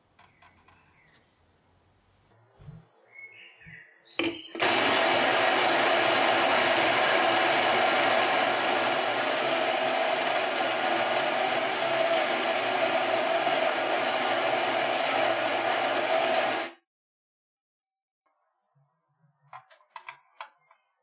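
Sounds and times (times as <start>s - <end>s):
coffee grinder grinding beans: 4.6s - 16.8s.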